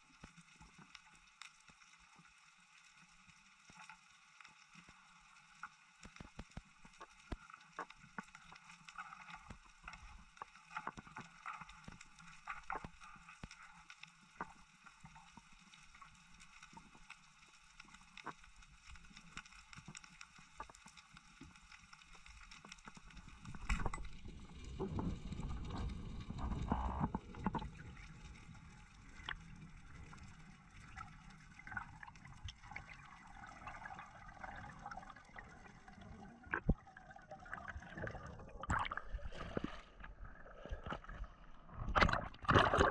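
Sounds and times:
underwater clicks and crackles: 0.0 - 42.9
low underwater rumbling and thumping: 23.3 - 30.2, 33.6 - 42.9.

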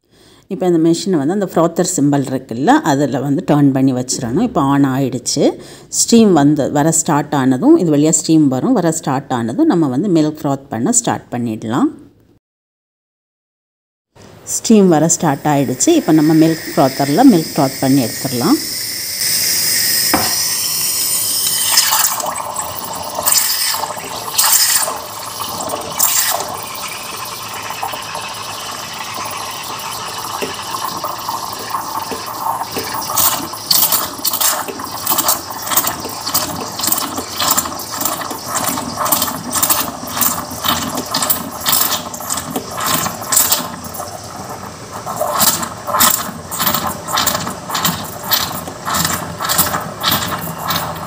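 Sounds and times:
steam wand frothing milk: 15.0 - 51.0.

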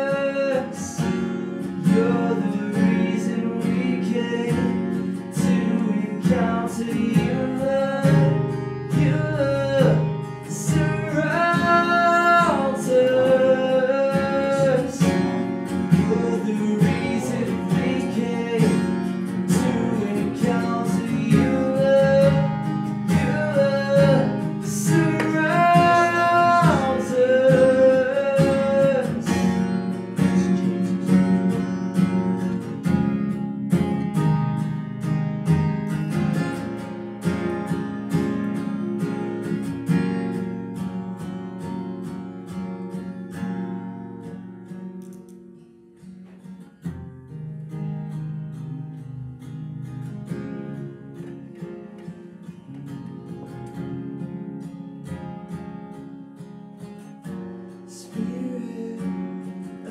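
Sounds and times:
man singing: 0.0 - 31.2, 48.6 - 49.8, 57.9 - 59.9
acoustic guitar strumming: 0.0 - 59.9.

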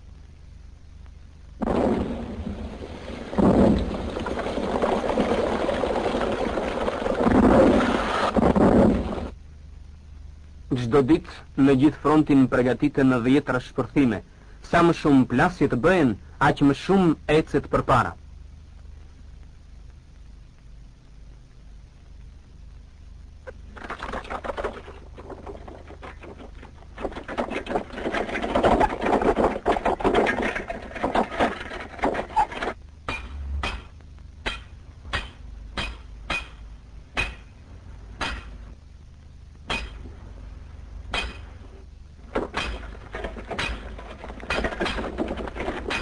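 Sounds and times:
stones clattering: 23.8 - 33.2, 42.3 - 46.0
metal tools striking rock: 33.1 - 36.6, 37.2 - 37.5, 38.2 - 38.6, 39.7 - 40.0, 41.1 - 41.6, 42.5 - 42.9, 43.5 - 43.9, 44.5 - 45.1.

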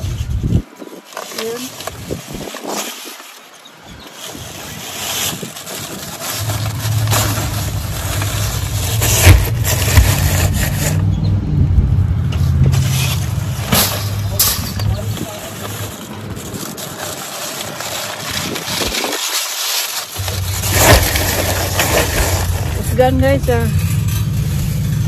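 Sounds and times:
plastic wrap crinkling: 0.0 - 11.0, 12.4 - 24.4
vehicle engine running: 6.3 - 16.8, 20.2 - 25.0.

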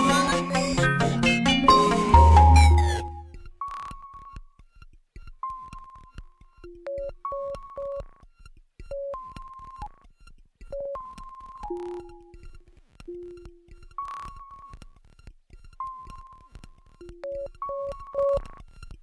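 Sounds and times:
electronic music loop: 0.0 - 3.9, 10.7 - 14.7.

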